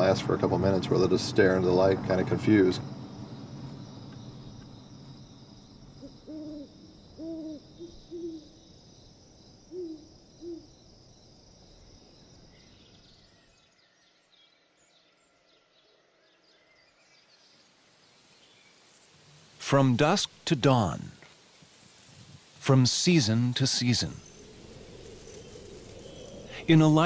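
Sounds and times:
night insects chorus: 0.0 - 27.0
owl hooting: 6.0 - 8.6, 9.7 - 10.8, 23.8 - 27.0.

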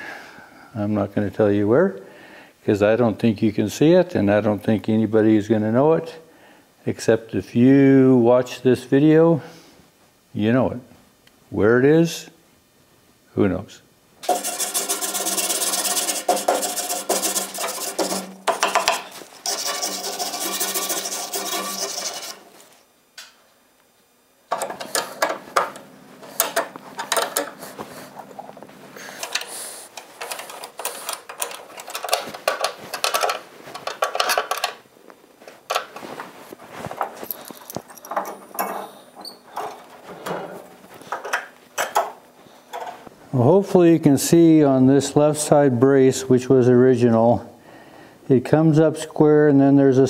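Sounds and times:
hand file rasping on metal: 14.2 - 22.5.

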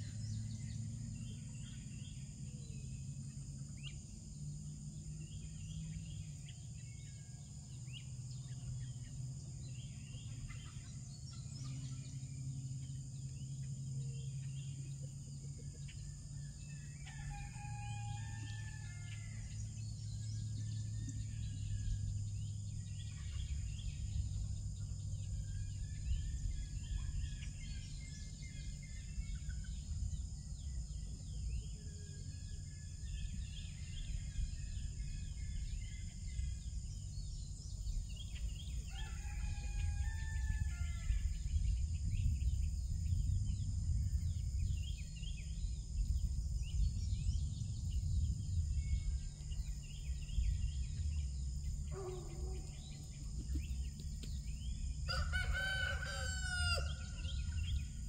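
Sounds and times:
rooster crowing: 17.0 - 19.6, 38.8 - 41.4, 55.1 - 57.8
low rumble: 39.8 - 51.9.

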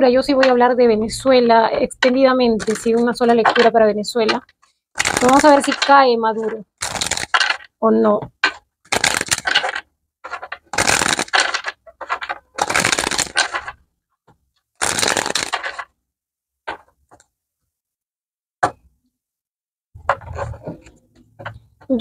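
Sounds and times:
cards being shuffled: 2.6 - 3.0, 5.0 - 7.7, 8.9 - 13.8, 14.8 - 15.9.

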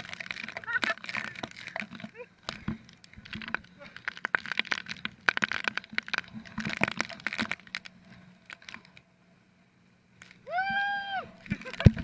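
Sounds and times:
low steady hum: 0.0 - 12.0
cracks and knocks on camera housing: 11.5 - 12.0.

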